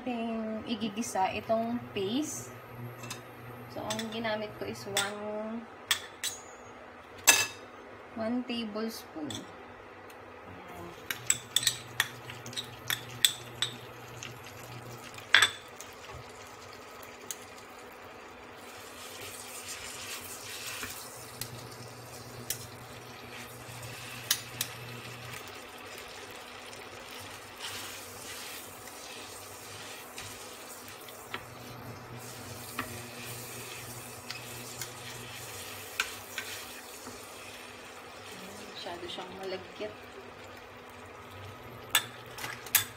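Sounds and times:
cooktop low hum: 0:00.0 - 0:42.9
paste sizzling in hot pan: 0:15.9 - 0:38.7.

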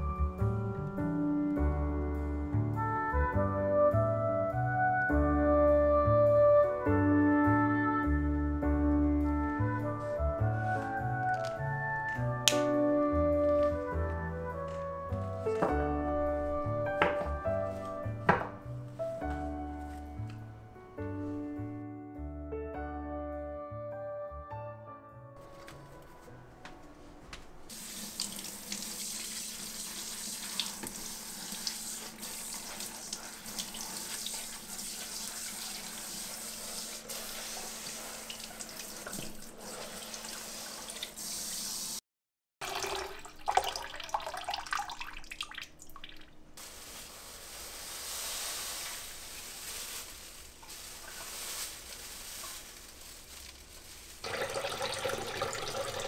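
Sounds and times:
tap water splashing into basket: 0:27.7 - 0:36.1, 0:37.1 - 0:41.2, 0:42.6 - 0:46.4, 0:54.2 - 0:56.0
water pouring into bowl: 0:42.6 - 0:46.3, 0:54.2 - 0:56.0.

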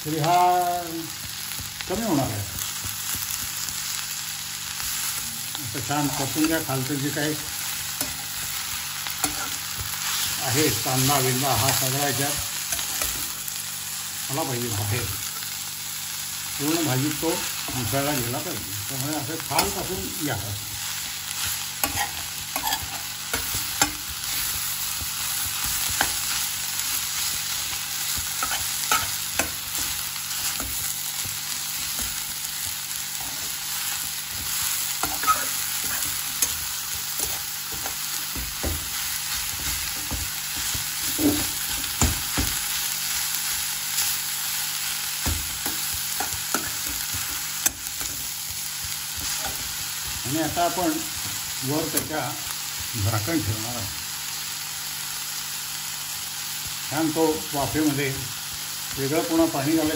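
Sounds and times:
leaves sizzling in a pan: 0:00.0 - 0:59.9
spatula scraping a pan: 0:20.7 - 0:32.3, 0:33.1 - 0:42.1.

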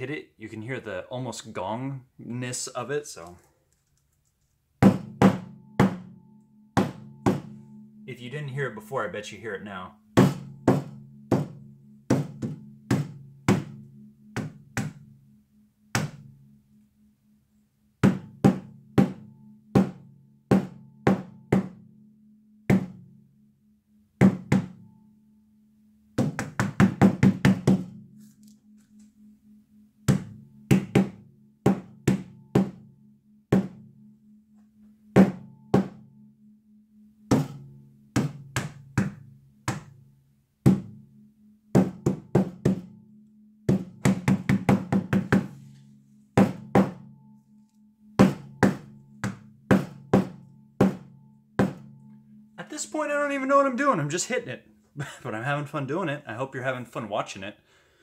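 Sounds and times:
tack hammer striking canvas: 0:04.8 - 0:06.1, 0:06.8 - 0:07.5, 0:10.2 - 0:13.8, 0:16.0 - 0:16.2, 0:18.0 - 0:19.2, 0:24.2 - 0:24.8, 0:26.2 - 0:27.9, 0:30.1 - 0:32.8, 0:33.5 - 0:33.8, 0:37.3 - 0:37.6, 0:38.2 - 0:39.9, 0:40.7 - 0:40.9, 0:41.8 - 0:42.9, 0:43.7 - 0:45.6, 0:46.4 - 0:47.0, 0:48.2 - 0:51.9
low gong-like ring: 0:05.1 - 0:09.3, 0:45.5 - 0:52.6.

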